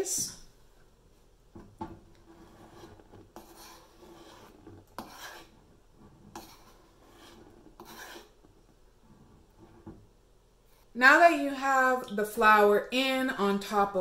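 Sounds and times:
scoop scraping flour: 2.2s - 9.9s.

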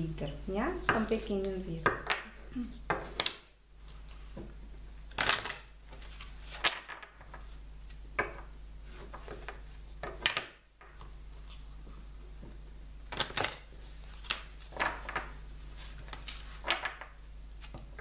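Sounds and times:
cards being shuffled: 5.1s - 8.0s, 13.1s - 18.0s.

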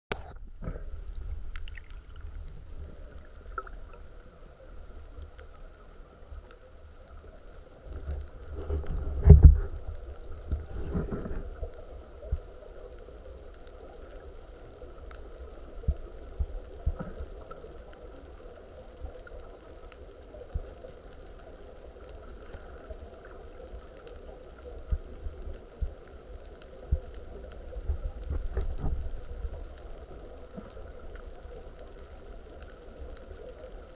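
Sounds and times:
muffled underwater rumble: 0.1s - 33.9s.

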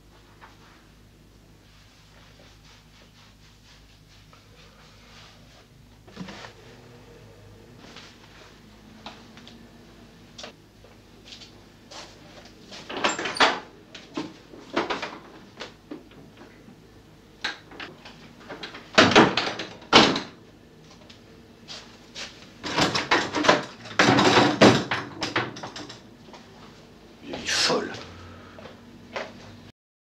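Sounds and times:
wooden knocks and rattles: 22.6s - 26.0s.

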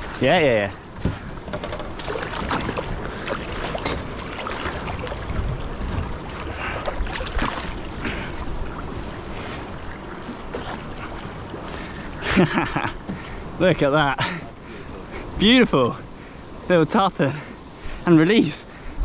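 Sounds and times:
wind rumble on microphone: 0.9s - 11.7s
fish thrashing water splashes: 1.9s - 12.1s.

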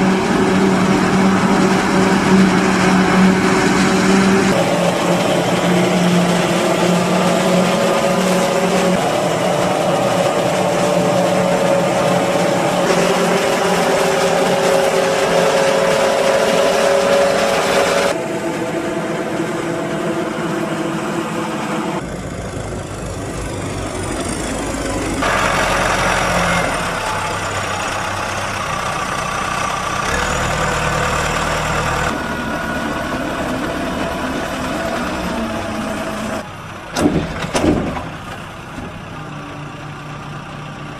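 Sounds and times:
high falling whine: 0.0s - 26.2s
engine drone: 0.0s - 40.9s.

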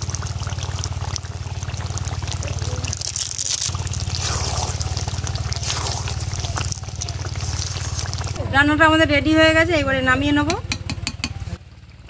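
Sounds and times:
curry bubbling and sizzling: 0.0s - 8.4s.

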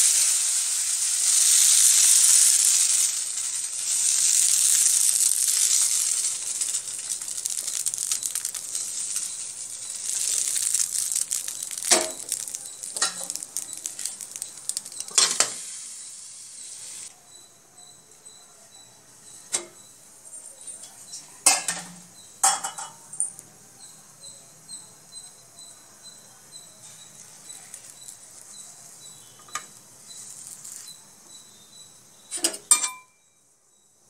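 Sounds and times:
metal clinks: 3.7s - 15.6s, 19.5s - 23.5s
pan lid clanking on metal: 21.4s - 23.0s, 32.4s - 33.1s.

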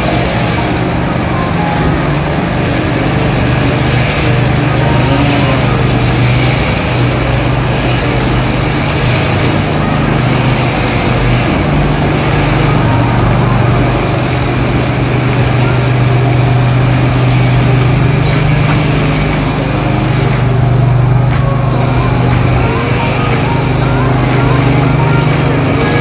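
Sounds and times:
ride-on mower engine droning: 0.0s - 26.0s
string trimmer cutting grass: 0.0s - 26.0s.

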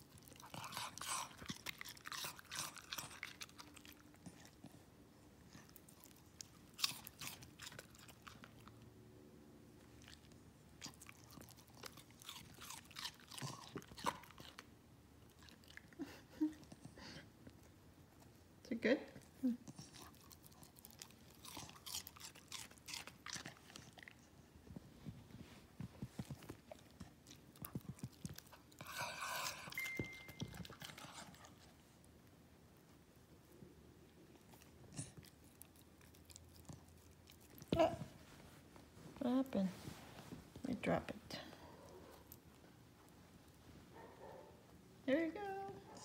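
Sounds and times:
dog crunching cucumber: 0.0s - 4.8s, 5.5s - 8.8s, 9.8s - 16.8s, 19.6s - 24.4s, 25.9s - 31.9s, 34.3s - 38.0s.

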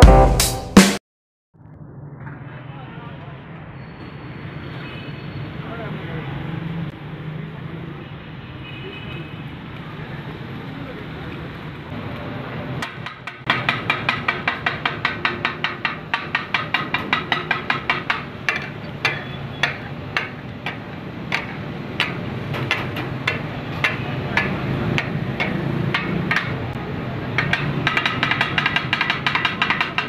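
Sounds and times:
metal spatulas striking griddle: 12.8s - 26.7s, 27.3s - 30.0s.

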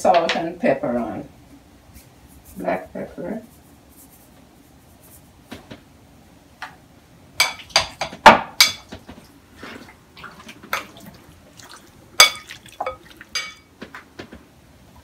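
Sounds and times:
soft wet mixing sounds: 1.0s - 5.5s, 7.4s - 14.0s
spoon clinking against glass bowl: 12.2s - 13.7s.

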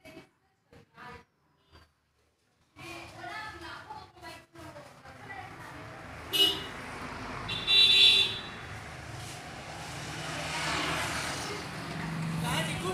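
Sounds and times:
traffic noise: 0.0s - 12.9s
vehicle horn honking: 6.3s - 6.8s, 7.5s - 8.6s.

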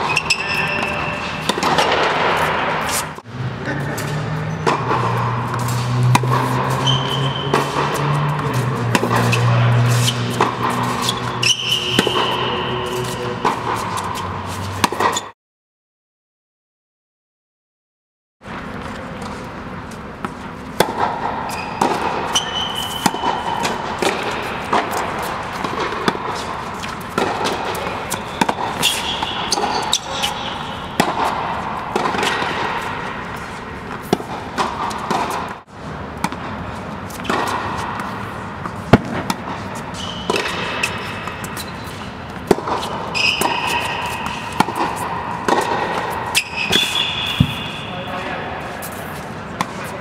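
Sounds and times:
ball bounces: 0.0s - 2.8s, 4.0s - 13.8s, 20.2s - 36.6s, 37.2s - 41.7s, 42.3s - 48.1s
shoe squeaks: 0.0s - 3.2s, 4.3s - 15.4s, 21.4s - 25.6s, 27.7s - 31.0s, 39.6s - 50.0s
tennis balls struck with racquets: 0.0s - 15.3s, 18.5s - 50.0s.

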